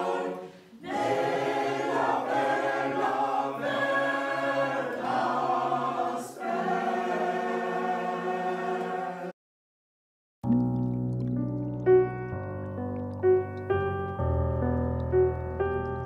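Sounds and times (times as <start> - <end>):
group of voices singing: 0.0 - 9.3.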